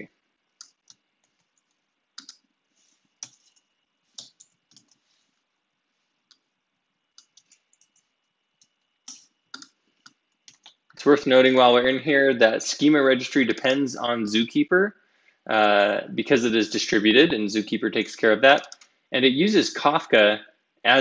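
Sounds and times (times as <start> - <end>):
keyboard and mouse clicks: 0.6 - 2.5, 3.2 - 5.0, 7.2 - 10.9.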